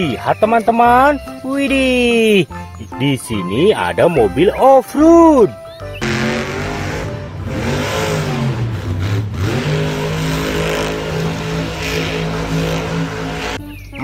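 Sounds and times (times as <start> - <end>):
truck engine revving: 4.2 - 13.7.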